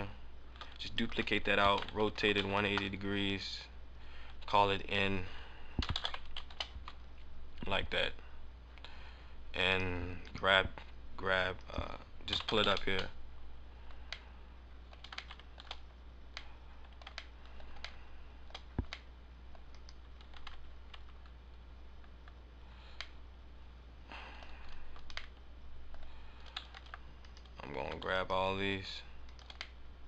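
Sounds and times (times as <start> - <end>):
steady low hum: 0.0 - 30.0
keyboard and mouse clicking: 0.6 - 2.9, 5.8 - 7.0, 12.3 - 13.1, 14.9 - 21.3, 23.0 - 23.2, 24.4 - 28.2, 29.2 - 29.8.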